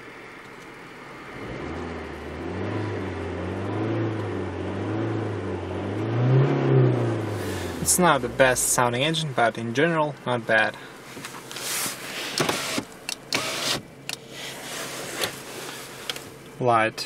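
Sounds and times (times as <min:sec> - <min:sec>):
car engine revving: 0:01.1 - 0:09.4.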